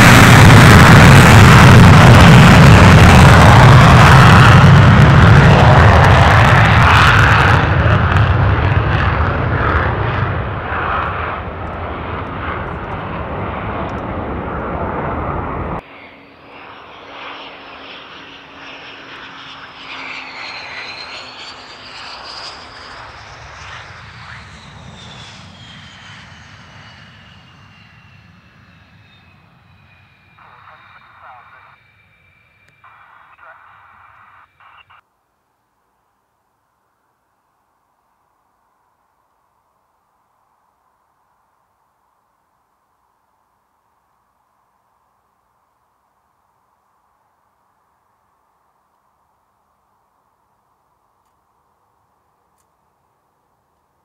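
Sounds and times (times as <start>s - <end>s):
jet afterburner roar: 0.0s - 35.0s
jet turbine whine: 0.0s - 35.0s.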